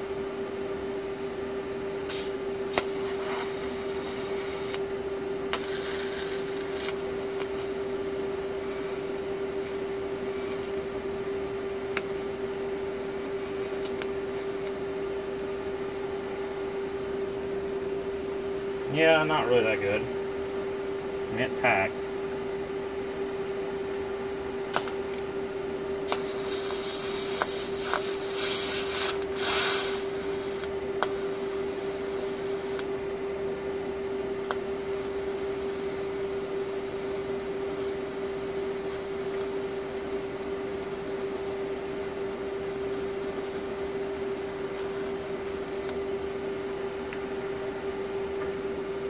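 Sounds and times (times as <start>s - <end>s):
constant hum: 0.0s - 49.0s
welding arc clicking and hissing: 2.1s - 4.8s, 5.5s - 14.8s, 24.7s - 25.0s, 26.0s - 32.9s, 34.5s - 46.0s.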